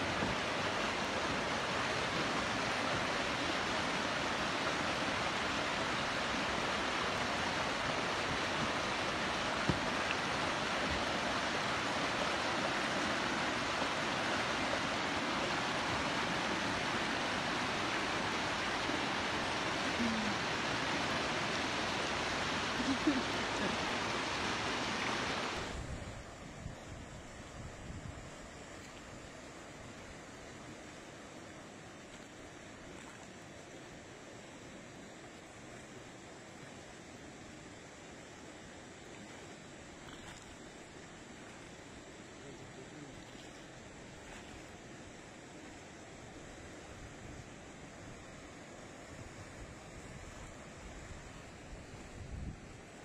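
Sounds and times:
river rushing in rapids: 0:00.0 - 0:53.0
faint voice: 0:19.9 - 0:20.5, 0:22.8 - 0:23.9, 0:42.4 - 0:43.2.

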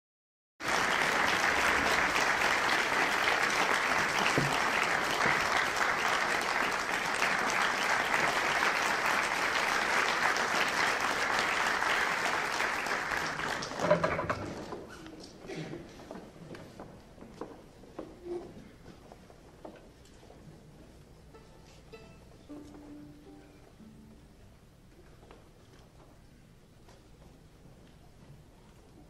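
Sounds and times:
audience applauding: 0:00.6 - 0:14.7.

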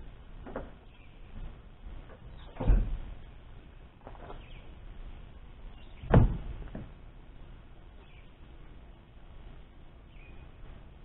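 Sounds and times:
tailgate slamming shut: 0:02.5 - 0:03.0, 0:06.0 - 0:06.9.

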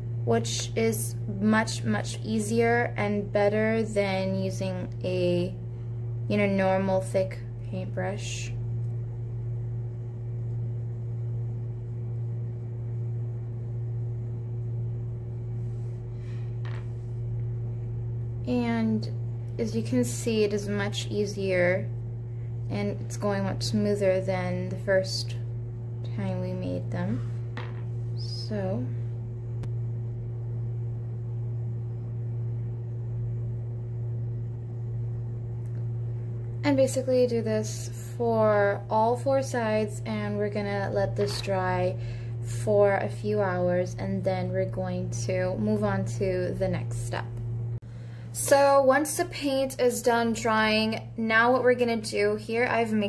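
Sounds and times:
steady low hum: 0:00.0 - 0:53.0
faint high steady tone: 0:26.1 - 0:29.1.

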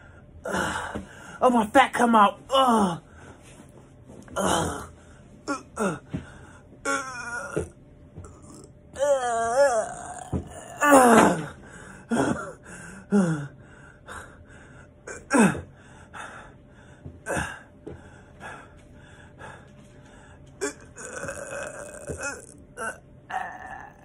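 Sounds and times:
man groaning: 0:02.5 - 0:03.0, 0:04.4 - 0:04.9, 0:05.5 - 0:06.1, 0:06.9 - 0:13.5, 0:20.6 - 0:24.0
man panting with effort: 0:11.4 - 0:20.4.

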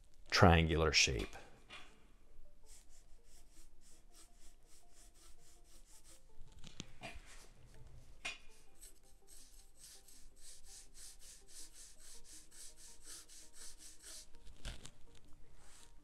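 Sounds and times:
pencil scratching on paper: 0:02.7 - 0:06.3, 0:07.0 - 0:14.5.

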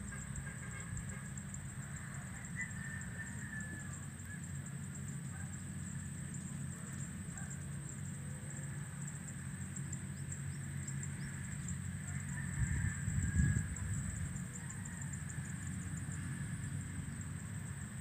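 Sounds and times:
high insect buzz: 0:00.0 - 0:18.0
low engine-like hum: 0:00.0 - 0:18.0
wind buffeting microphone: 0:12.6 - 0:14.4.

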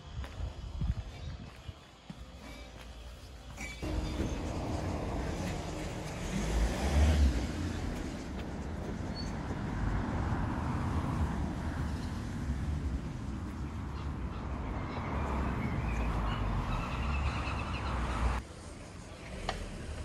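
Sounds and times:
road traffic: 0:02.1 - 0:20.0
low rumble: 0:03.8 - 0:13.5.

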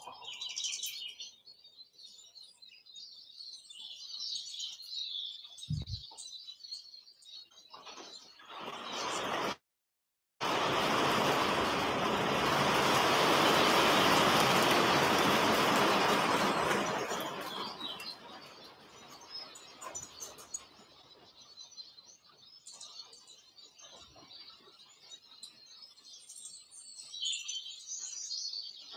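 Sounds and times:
small birds chirping: 0:00.0 - 0:09.6, 0:12.4 - 0:28.9
loud steady rushing noise: 0:10.4 - 0:17.7.

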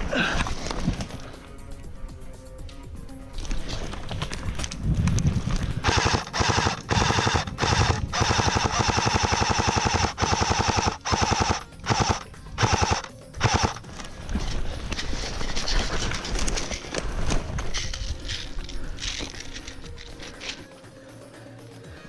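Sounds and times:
airsoft rifle bursts: 0:05.8 - 0:14.1.

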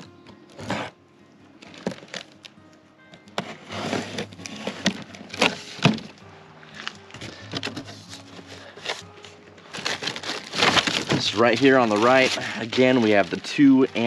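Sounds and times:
faint background music: 0:00.0 - 0:14.0
cardboard box being opened: 0:03.4 - 0:06.2, 0:09.7 - 0:14.0.

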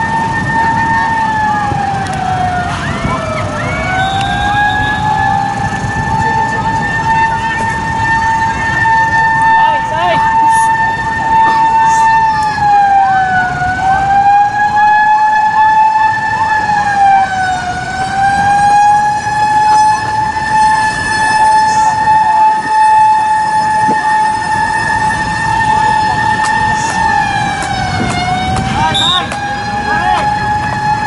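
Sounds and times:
high siren-like whine: 0:00.0 - 0:31.0.

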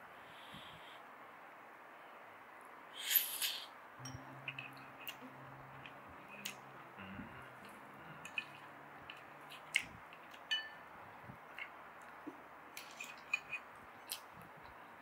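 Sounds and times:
faint low hum: 0:04.0 - 0:15.0.

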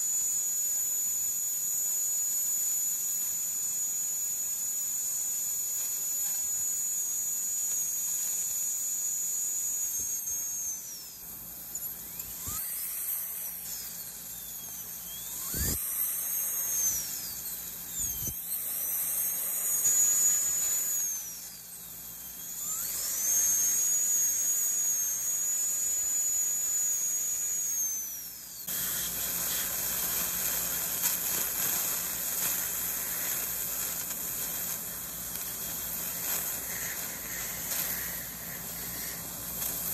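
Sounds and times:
dental drill whining: 0:00.0 - 0:39.9
steady hiss: 0:28.6 - 0:39.9.

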